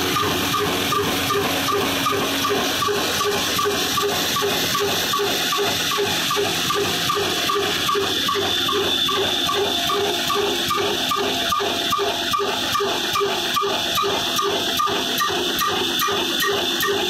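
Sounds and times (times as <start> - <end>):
continuous hiss of flywheels and mill: 0.0 - 11.4
diesel engine beating: 0.0 - 17.0.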